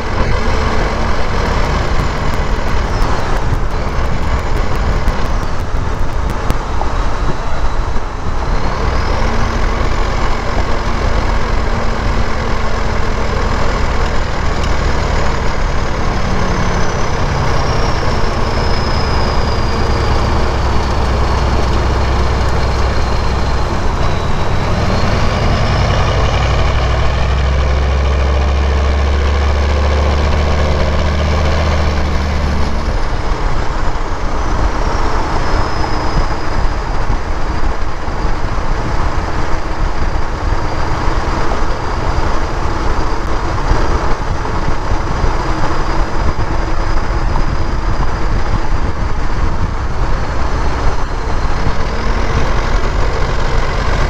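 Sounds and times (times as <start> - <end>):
diesel engine drone: 0.0 - 54.0
turbocharger whistle: 7.5 - 37.0.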